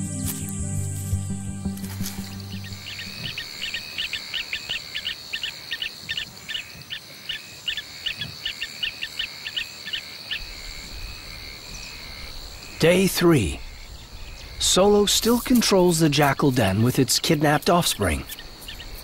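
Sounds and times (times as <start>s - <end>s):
chirping call: 2.0s - 6.7s
high-pitched insect trill: 2.0s - 12.8s.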